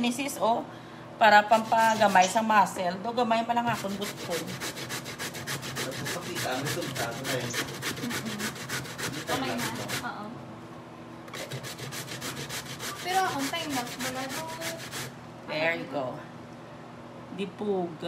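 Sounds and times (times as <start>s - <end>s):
cassava rasping on metal grater: 1.5s - 2.4s, 3.7s - 10.1s, 11.3s - 15.2s.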